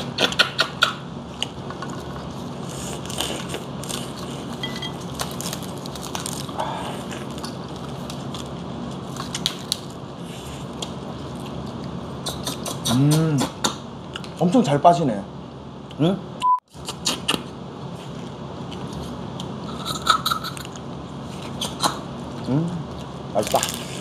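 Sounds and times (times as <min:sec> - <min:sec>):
crab legs cracking: 0:05.0 - 0:10.0.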